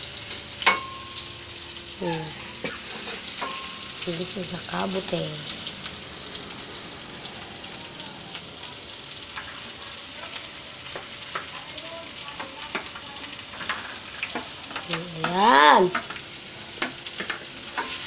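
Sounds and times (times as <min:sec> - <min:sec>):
mushrooms sizzling in a pan: 0:00.0 - 0:18.0
metal spatula scraping and tapping: 0:02.6 - 0:03.9, 0:16.8 - 0:18.0.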